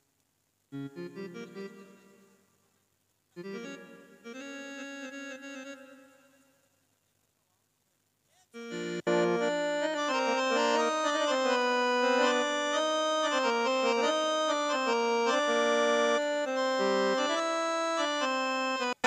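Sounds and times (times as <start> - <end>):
click: 0.2 - 0.4
organ-like keyboard music: 0.7 - 2.3, 3.4 - 6.4, 8.6 - 19.0.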